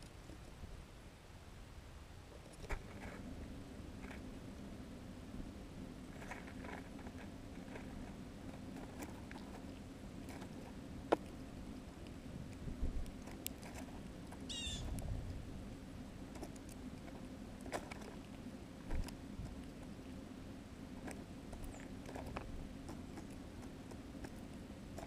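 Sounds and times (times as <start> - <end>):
short chirping bird call: 14.5 - 14.9.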